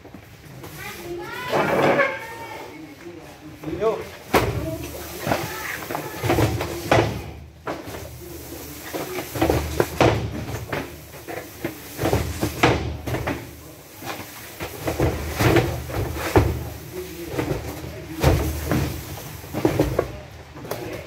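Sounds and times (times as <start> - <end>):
cartons thudding and knocking: 4.2 - 20.3.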